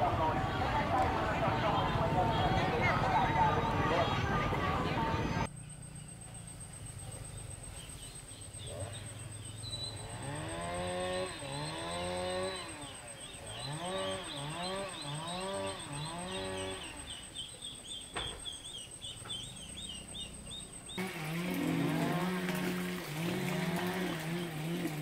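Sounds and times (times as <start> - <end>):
high insect drone: 5.4 - 25.0.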